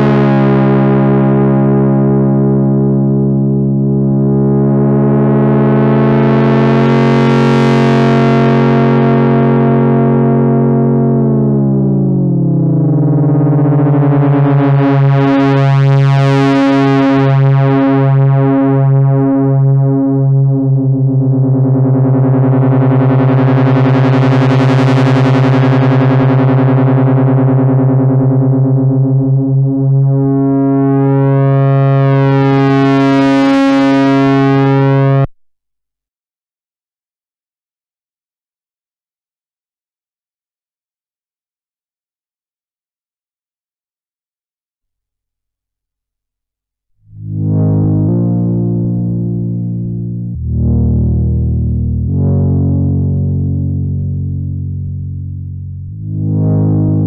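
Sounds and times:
synthesizer low drone: 0:00.0 - 0:35.3, 0:47.0 - 0:57.0.

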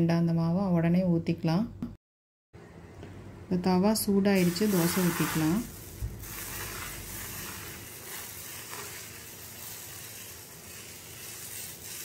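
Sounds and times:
batter sizzling on hot griddle: 0:04.4 - 0:12.0.

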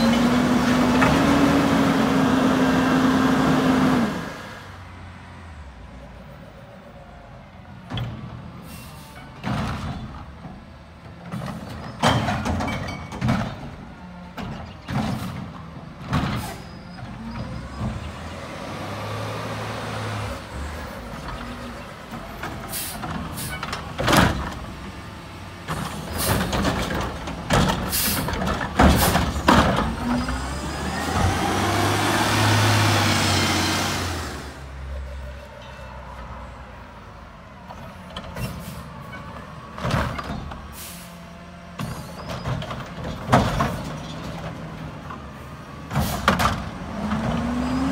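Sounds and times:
diesel engine revving: 0:00.0 - 0:05.1, 0:17.2 - 0:34.9, 0:43.1 - 0:47.9
cart arm clanks and bangs: 0:11.3 - 0:16.7, 0:22.4 - 0:24.8, 0:25.7 - 0:30.4, 0:41.8 - 0:44.7.

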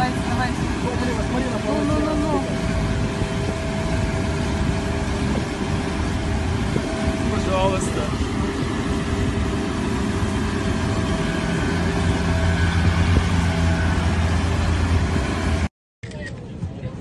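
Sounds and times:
low drone with rushing hiss: 0:00.0 - 0:15.7.

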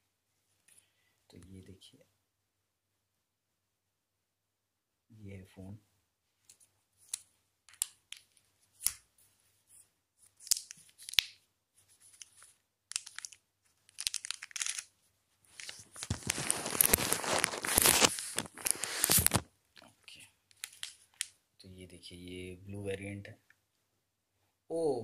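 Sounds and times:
plastic wrap crinkling and tearing: 0:12.1 - 0:14.9, 0:15.5 - 0:19.5, 0:20.5 - 0:21.2
clicks and rustles: 0:15.5 - 0:19.9, 0:20.5 - 0:21.3.

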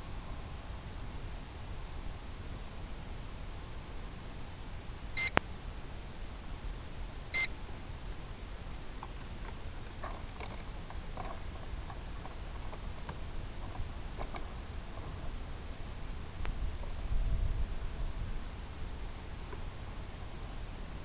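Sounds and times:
steady hiss: 0:00.0 - 0:21.0
short electronic beeps: 0:05.2 - 0:05.4, 0:07.3 - 0:07.5.

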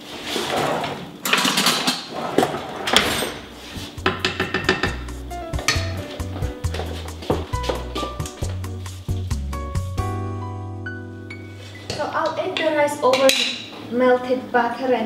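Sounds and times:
metal pots clattering and scraping: 0:00.0 - 0:08.2
background music: 0:03.5 - 0:12.6.

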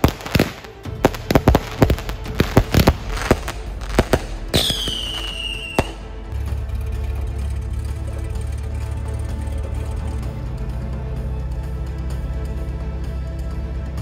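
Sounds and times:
firework bang: 0:00.0 - 0:06.1
firework cracks and pops: 0:00.0 - 0:06.1
firework whistle: 0:02.7 - 0:06.1.

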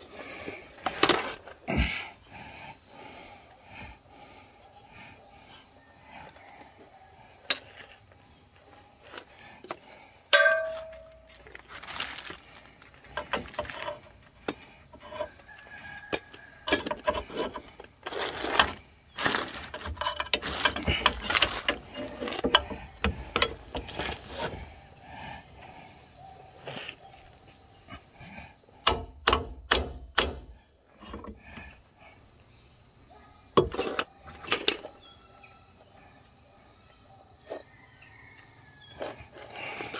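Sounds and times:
ringing metal clink: 0:10.3 - 0:11.3
steel hardware clinking: 0:10.3 - 0:11.4, 0:19.7 - 0:24.2.

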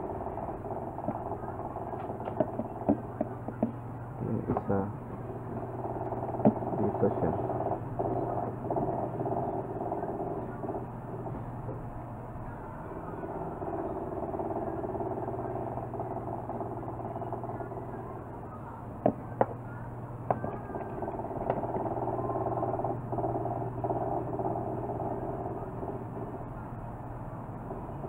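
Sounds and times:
mechanical drone with low hum: 0:00.0 - 0:28.0.

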